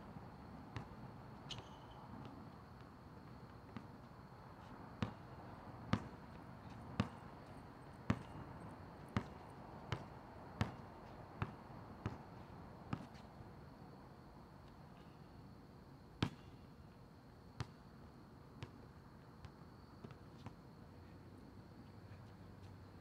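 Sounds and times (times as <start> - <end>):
basketball bouncing on asphalt: 0.8 - 4.1, 5.0 - 7.5, 8.1 - 8.5, 9.1 - 12.2, 12.9 - 13.2, 16.2 - 16.5.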